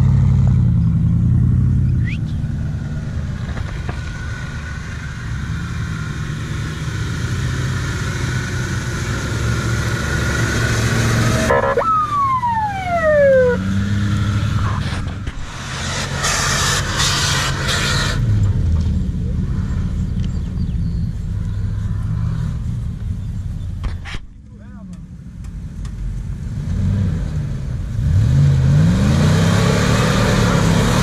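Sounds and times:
off-road vehicle engines: 0.0 - 31.0
rush of noise: 2.1 - 18.2
tone falling in pitch: 11.1 - 14.9.

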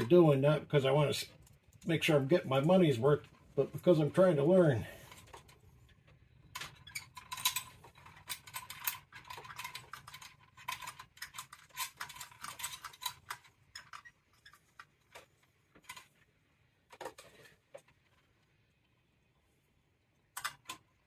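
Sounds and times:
wires clicking in metal box: 5.0 - 16.3, 20.3 - 21.0.

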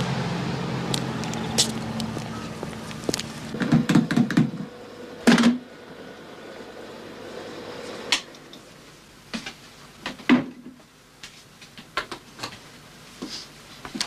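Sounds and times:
steady hum: 0.0 - 11.2.

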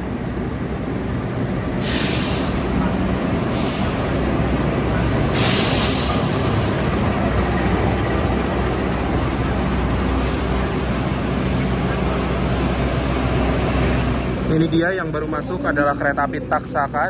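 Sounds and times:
train rumbling: 0.0 - 17.0
air brake hiss: 1.8 - 2.8, 3.5 - 4.1, 5.3 - 6.4.

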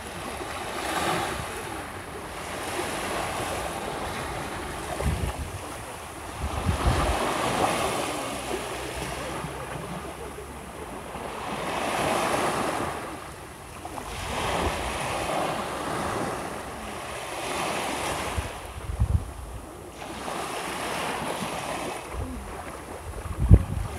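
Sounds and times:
small waves breaking on sand: 0.0 - 23.9
wind buffeting microphone: 3.3 - 8.3, 17.9 - 19.8, 22.1 - 23.9.

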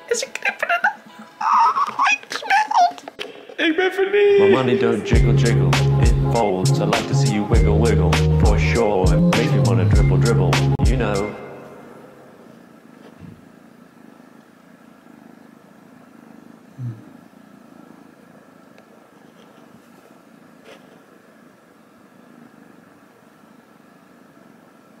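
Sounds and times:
kitten purring: 15.0 - 18.3.

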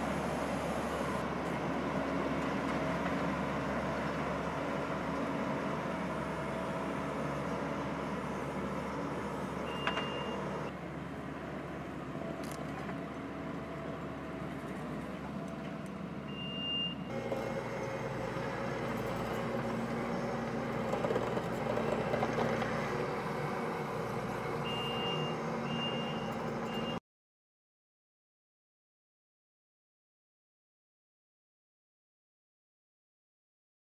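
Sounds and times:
dozer blade pushing dirt: 0.0 - 10.7, 12.2 - 27.0
skid steer engine running: 0.0 - 27.0
high backup alarm beeps: 9.6 - 10.5, 16.3 - 17.0, 24.6 - 27.0.

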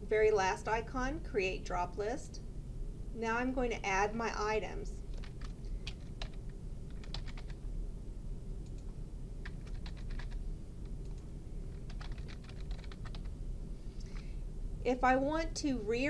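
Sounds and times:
low background hum: 0.0 - 16.0
keyboard typing: 5.1 - 7.6, 8.6 - 13.3.

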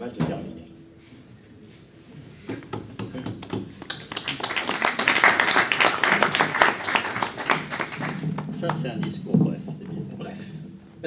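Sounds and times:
audience applauding: 2.9 - 9.2.

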